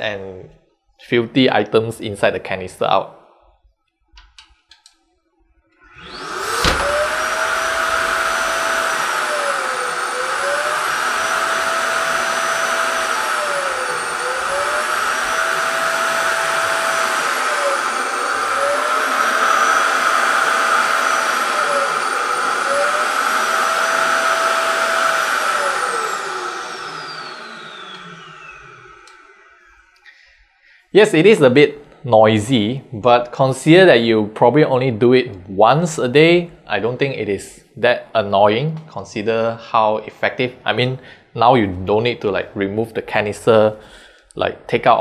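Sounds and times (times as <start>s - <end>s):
vacuum suction motor whining: 5.8s - 30.4s.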